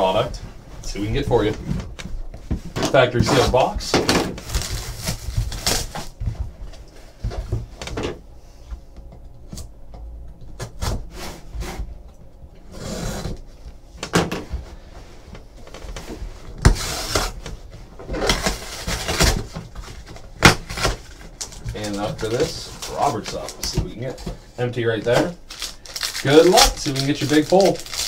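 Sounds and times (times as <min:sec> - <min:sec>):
cardboard and plastic wrap scraping: 0:02.9 - 0:06.2, 0:15.8 - 0:28.0
tissue paper rustling: 0:25.5 - 0:28.0.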